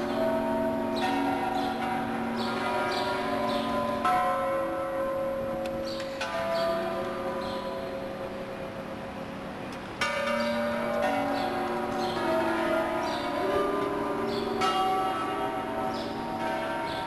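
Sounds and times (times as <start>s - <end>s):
hanging bells ringing: 0.0s - 8.8s, 10.0s - 17.0s.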